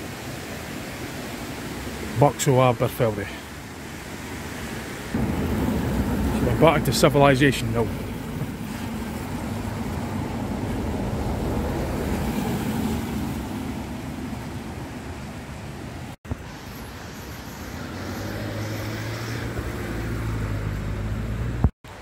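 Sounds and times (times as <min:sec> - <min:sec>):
cars passing on wet road: 0:00.0 - 0:22.0
vehicle engine hum: 0:05.1 - 0:22.0.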